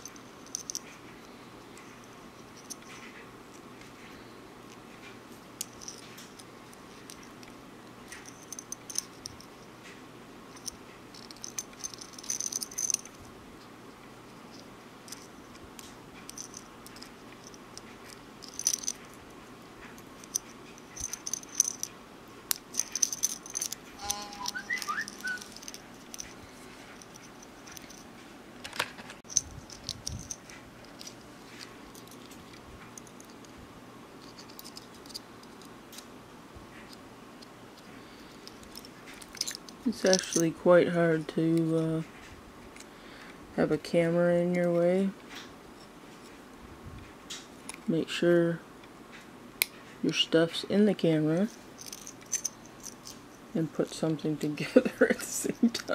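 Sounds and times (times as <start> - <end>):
small metal parts rattling: 0.0 - 1.1, 1.8 - 3.2, 5.4 - 9.7, 10.5 - 13.3, 14.3 - 33.5, 34.1 - 36.1, 37.8 - 40.7, 51.3 - 55.9
faint rising squeaks: 23.6 - 27.0.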